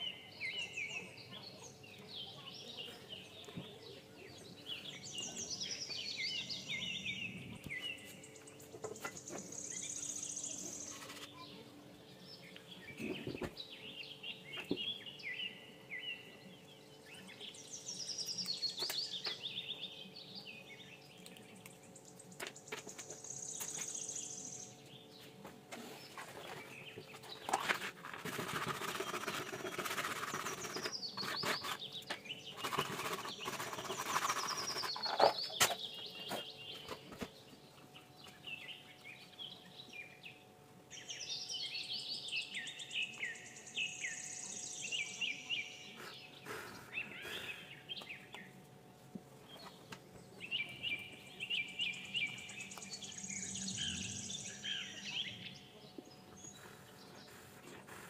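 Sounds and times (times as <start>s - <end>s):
birds chirping: 0.0s - 58.0s
plastic pipe rustling and scraping: 10.7s - 11.4s, 13.0s - 13.6s, 25.4s - 37.4s.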